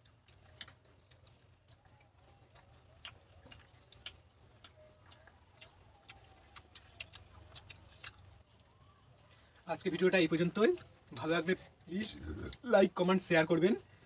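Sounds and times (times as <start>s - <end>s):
mouth smacks from chewing: 2.5s - 8.4s.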